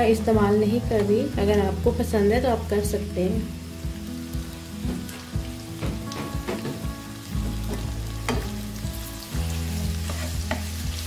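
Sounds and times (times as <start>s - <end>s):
onions sizzling in hot oil: 0.0s - 11.0s
oil ticking and popping: 3.8s - 8.9s.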